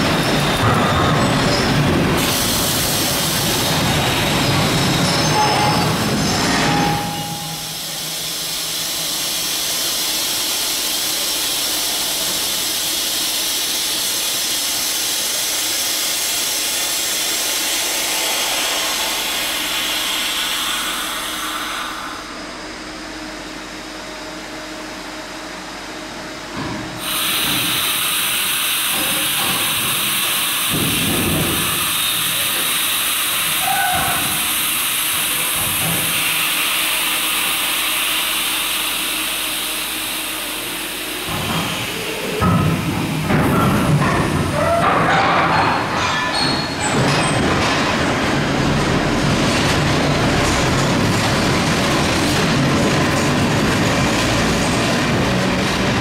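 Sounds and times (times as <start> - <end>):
train air hissing: 1.9 - 23.0, 26.9 - 44.6.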